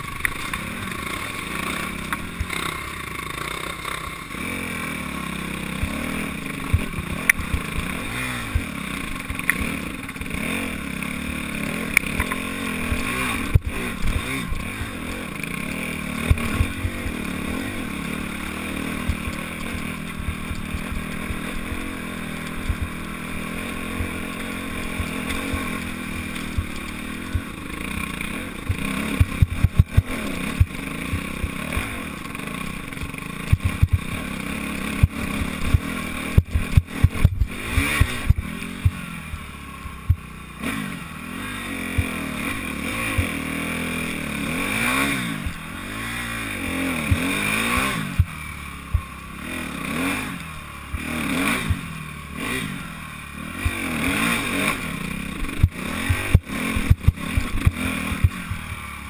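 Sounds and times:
motorcycle engine revving: 0:00.0 - 0:59.0
bike knocking on rocks: 0:33.5 - 0:34.1.

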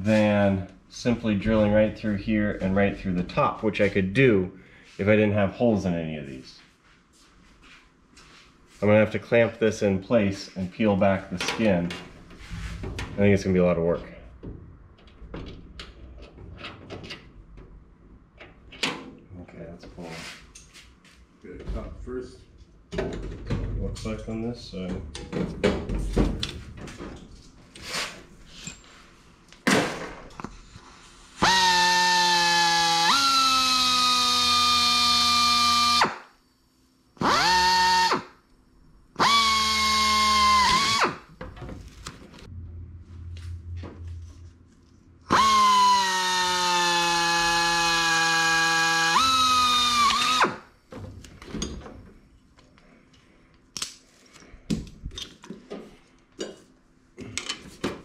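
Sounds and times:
air drill whining through metal: 0:31.4 - 0:36.3, 0:37.2 - 0:38.4, 0:39.2 - 0:41.4, 0:45.3 - 0:50.7.

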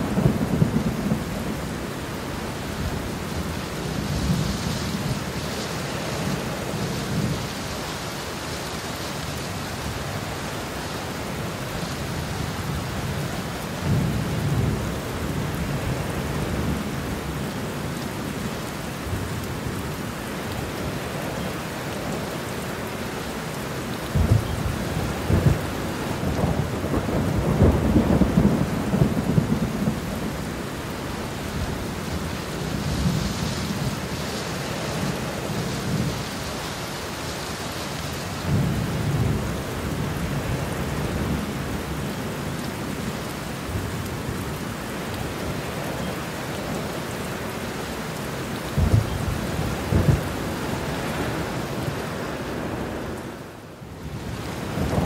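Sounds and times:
steady rain: 0:00.0 - 0:55.0
thunder rumbling: 0:24.2 - 0:34.1, 0:48.7 - 0:51.5, 0:54.1 - 0:55.0.

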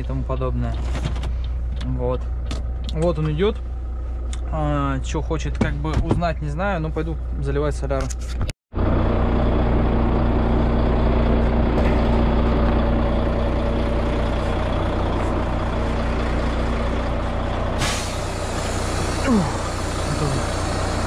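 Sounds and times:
truck diesel engine running: 0:00.0 - 0:07.6, 0:08.7 - 0:21.0.

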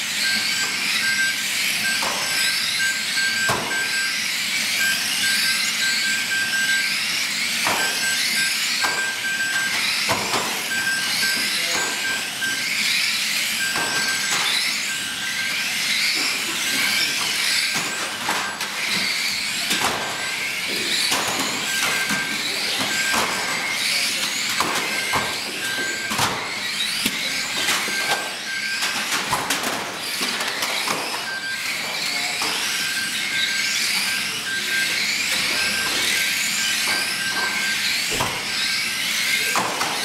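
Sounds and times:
electric toy car motors whining: 0:00.0 - 0:40.0
toy cars knocking together: 0:24.2 - 0:31.2.

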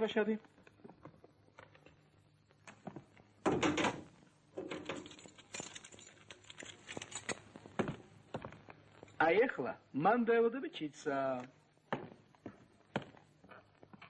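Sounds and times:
glass-paned door rattling: 0:03.5 - 0:06.2.

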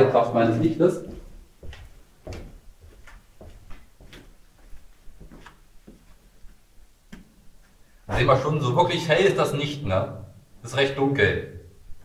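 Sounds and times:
footsteps walking: 0:00.9 - 0:07.9.

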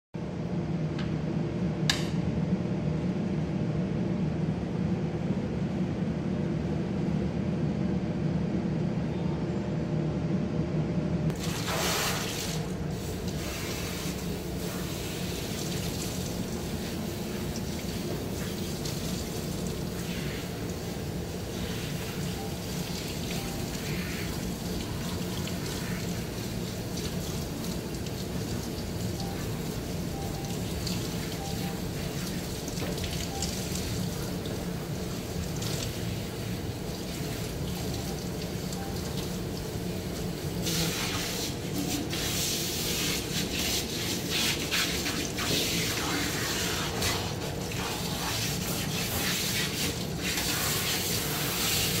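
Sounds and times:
water running into sink: 0:11.4 - 0:42.5.

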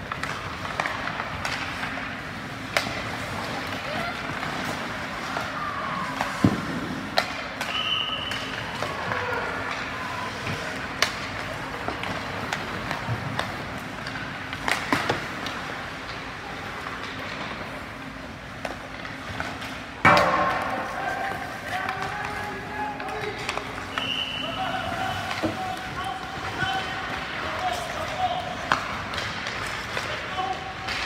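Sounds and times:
high whistle tone: 0:23.9 - 0:24.6.

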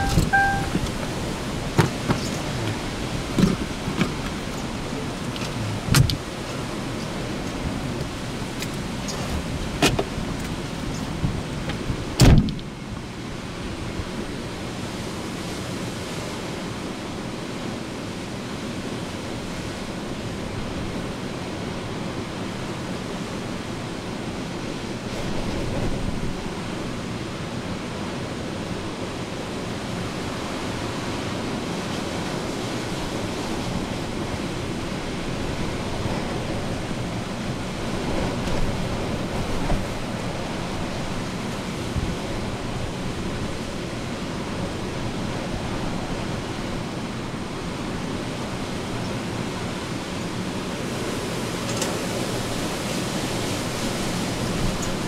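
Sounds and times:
hurricane wind and rain: 0:00.0 - 0:55.0.

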